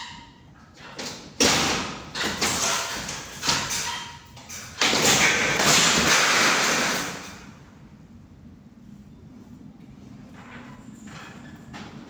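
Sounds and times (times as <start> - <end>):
ceiling boards scraping and cracking: 0.8 - 7.5
board falling: 4.8 - 7.3.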